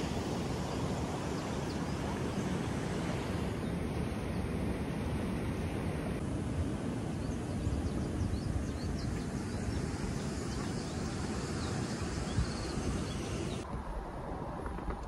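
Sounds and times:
wind rumbling on microphone: 0.0 - 15.0
small birds chirping: 7.1 - 13.6.

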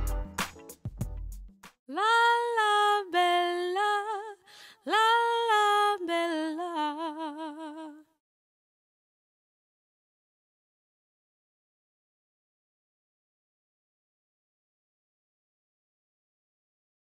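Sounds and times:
woman singing unaccompanied: 1.9 - 8.2.

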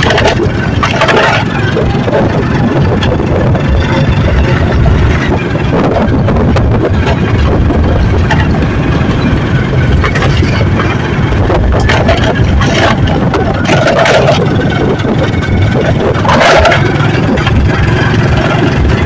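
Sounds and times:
vehicle engine running: 0.0 - 19.0
wind rumble on microphone: 0.0 - 19.0.

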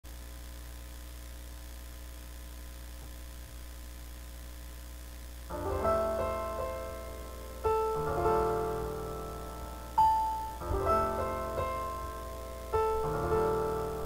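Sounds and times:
low electrical hum: 0.0 - 14.0
digital piano notes and chords: 5.5 - 14.0.

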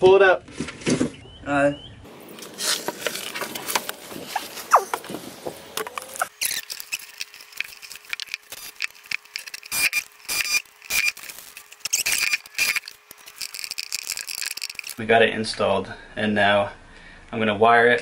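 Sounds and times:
handling clicks and scrapes: 2.2 - 15.0
cordless drill driving screws: 6.3 - 15.0.

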